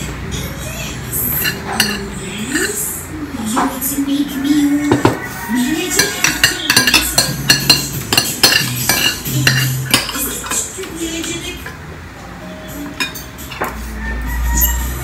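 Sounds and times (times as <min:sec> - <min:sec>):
cutlery clinking on plates: 0:01.4 - 0:02.8, 0:04.9 - 0:11.8, 0:12.8 - 0:13.9.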